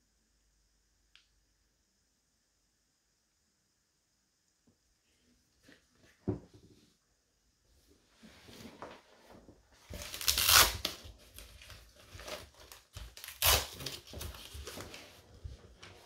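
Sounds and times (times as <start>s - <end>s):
packaging tearing rustles: 9.9s - 15.0s
packaging crinkling: 9.9s - 15.1s.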